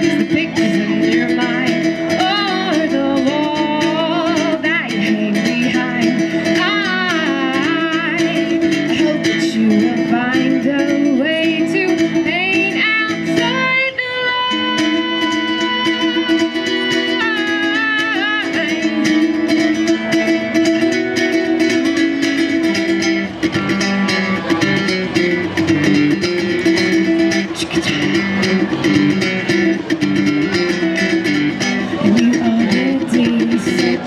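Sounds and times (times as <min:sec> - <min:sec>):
person singing with vibrato: 0:00.0 - 0:19.5, 0:31.8 - 0:34.0
acoustic guitar through pa: 0:00.0 - 0:34.0.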